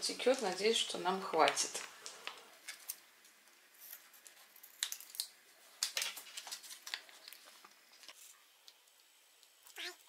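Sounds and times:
plastic pouch crinkling: 0:03.9 - 0:08.3.

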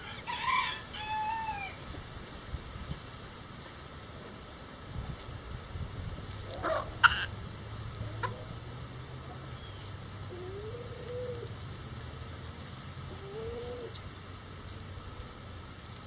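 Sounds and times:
chickens calling softly: 0:06.4 - 0:07.4, 0:08.0 - 0:08.6.

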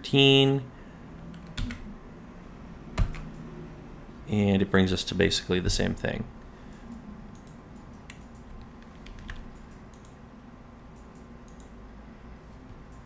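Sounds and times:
low steady hum: 0:00.0 - 0:13.0
keyboard keys clicking: 0:07.4 - 0:10.2.

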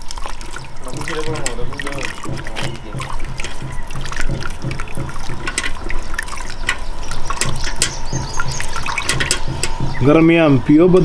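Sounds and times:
wet cloth squelches: 0:00.0 - 0:10.3
water dripping in a pot: 0:00.0 - 0:10.5.

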